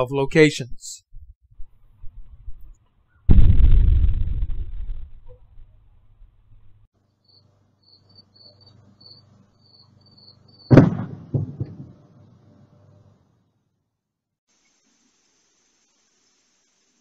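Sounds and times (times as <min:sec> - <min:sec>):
sonic booms: 0:03.3 - 0:06.8, 0:10.7 - 0:12.0.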